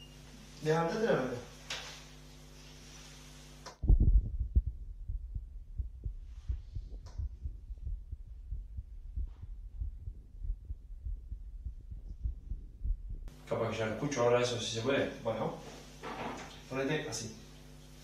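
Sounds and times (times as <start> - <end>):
heartbeat through stethoscope: 3.8 - 13.3.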